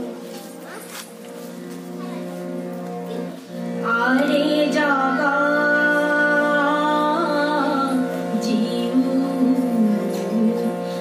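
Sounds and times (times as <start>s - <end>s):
harmonium sustained notes: 0.0s - 11.0s
woman singing: 3.8s - 11.0s.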